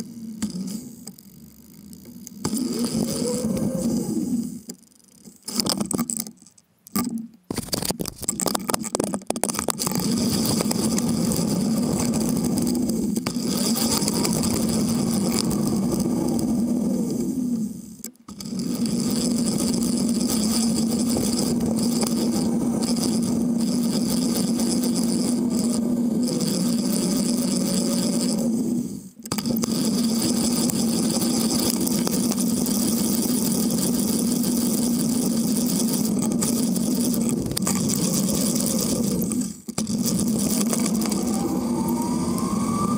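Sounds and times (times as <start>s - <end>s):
steady hum: 0.0s - 42.9s
bicycle rolling on asphalt: 9.7s - 16.8s, 29.6s - 42.9s.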